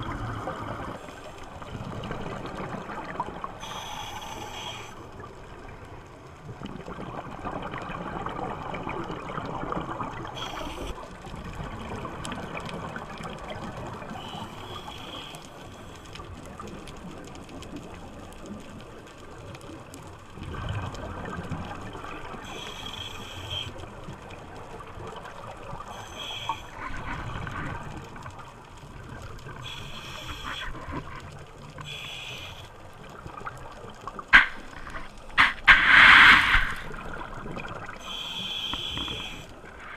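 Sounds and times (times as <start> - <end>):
underwater water noise: 0.0 - 39.9
hissing regulator breaths: 3.6 - 5.0, 10.4 - 11.0, 14.2 - 16.1, 22.4 - 23.8, 25.9 - 27.0, 29.6 - 31.0, 31.8 - 32.7, 34.4 - 37.0, 38.0 - 39.9.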